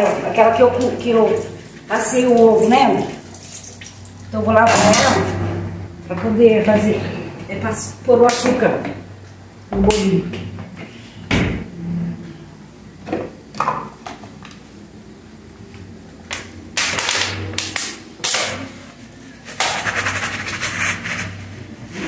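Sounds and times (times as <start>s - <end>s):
water rinsing: 0.0s - 5.3s
sponge scrubbing: 19.4s - 22.0s.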